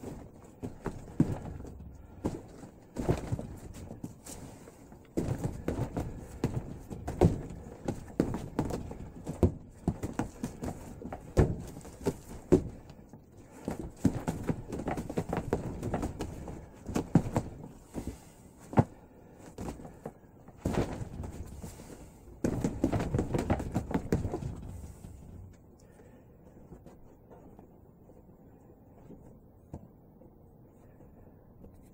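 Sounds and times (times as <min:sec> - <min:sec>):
hands knocking on wooden dummy: 0:22.4 - 0:25.2.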